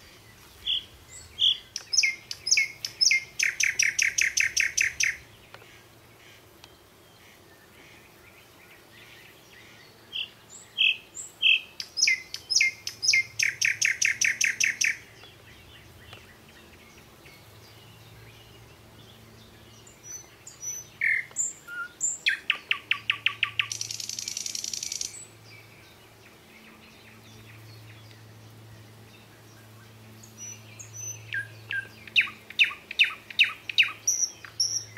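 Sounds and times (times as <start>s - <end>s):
songbird singing: 0.0s - 34.9s.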